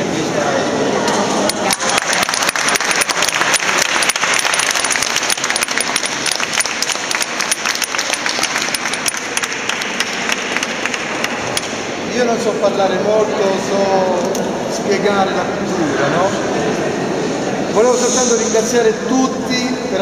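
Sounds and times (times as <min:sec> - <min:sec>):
group applauding: 0:01.5 - 0:11.6.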